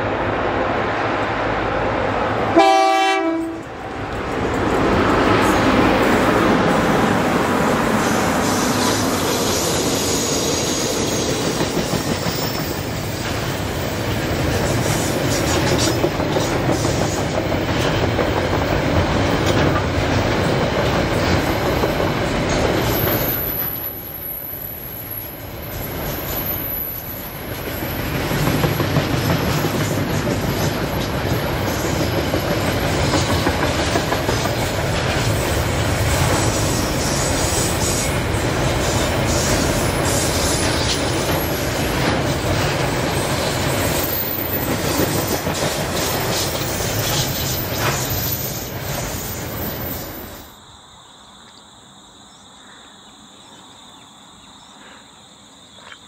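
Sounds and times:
freight train rolling past: 0.0 - 50.6
wheels clacking on rails: 2.2 - 24.1, 25.2 - 50.5.

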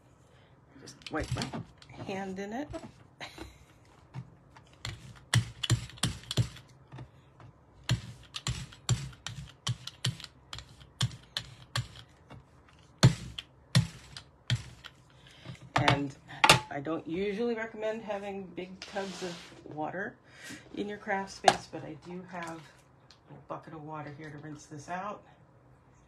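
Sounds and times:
craft tools clicking on desk: 7.9 - 12.2.

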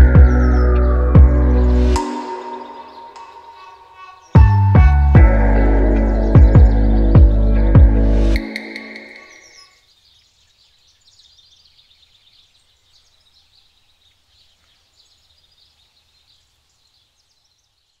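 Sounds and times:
music: 0.0 - 9.4
birds chirping: 0.0 - 18.0.

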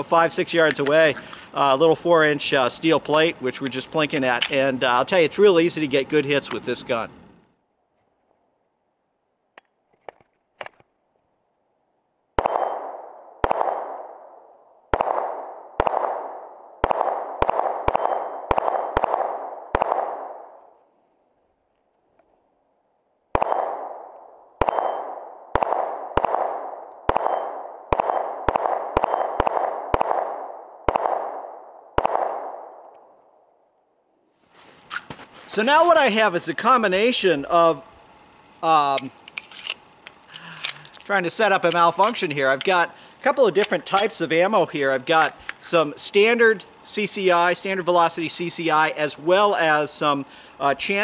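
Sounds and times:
pistol shots: 12.4 - 20.6, 23.3 - 32.9.

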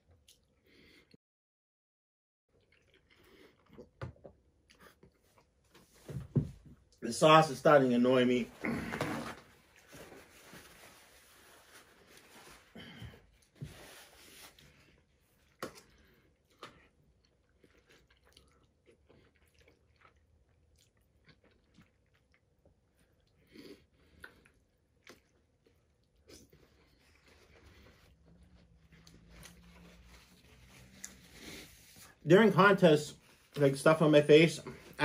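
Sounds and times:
chewing soft food: 2.5 - 5.7, 14.6 - 32.1.

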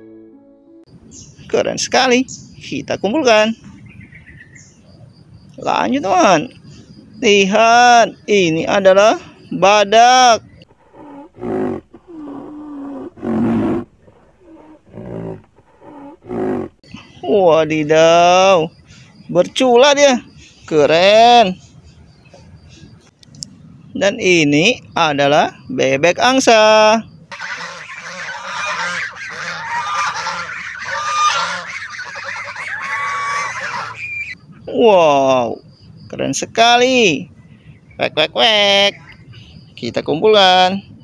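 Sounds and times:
low animal moaning: 10.4 - 16.9
deep animal roars and growls: 10.6 - 16.8
geese honking: 27.3 - 34.4.

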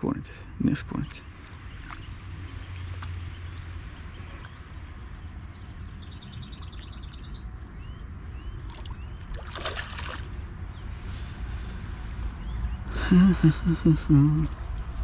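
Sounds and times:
fish splashing at the surface: 8.6 - 10.5.

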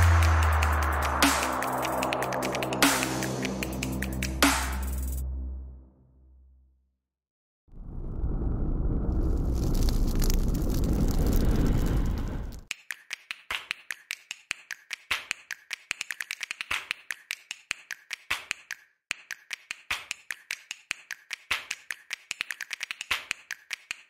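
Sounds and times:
rapid sharp clicks: 12.7 - 24.0.

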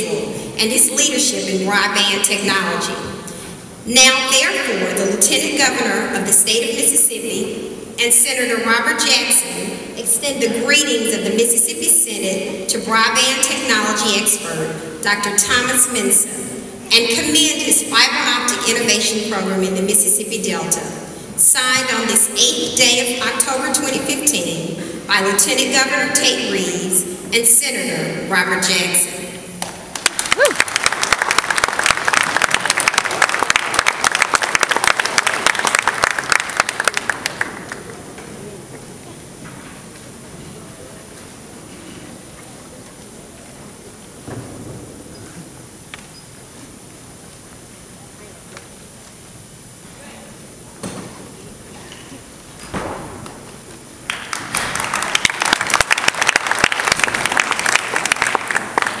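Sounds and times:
audience applauding: 29.9 - 38.0, 54.1 - 59.0.

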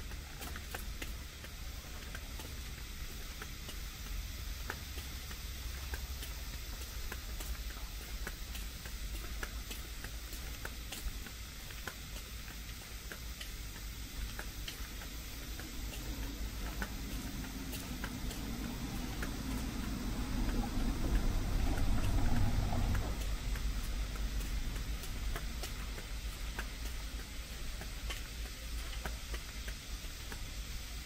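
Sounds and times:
footsteps on paved path: 0.0 - 31.0
low rushing noise: 14.4 - 28.1.

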